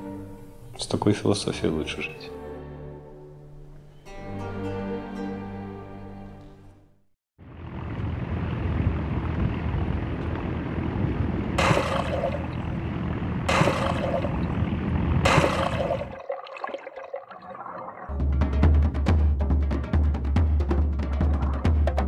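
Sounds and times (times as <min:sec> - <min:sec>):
boat motor drone: 0:07.4 - 0:16.2
rushing wind and water: 0:08.7 - 0:18.1
hull slamming into waves: 0:11.6 - 0:12.8, 0:13.4 - 0:16.2.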